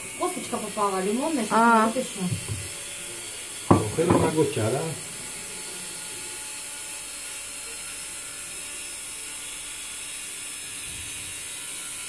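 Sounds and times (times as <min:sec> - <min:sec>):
electric stick blender running: 0:00.0 - 0:12.0.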